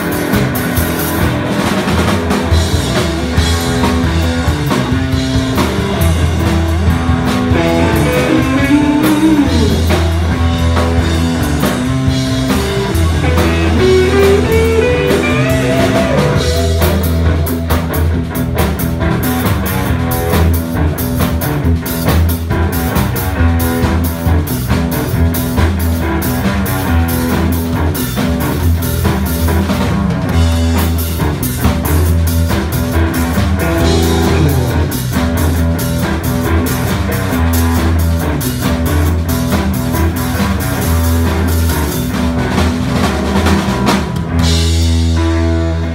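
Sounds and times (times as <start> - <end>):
instrumental blues-rock band: 0.0 - 45.9
lead guitar bending notes: 6.2 - 10.8, 12.8 - 18.9, 33.5 - 35.6.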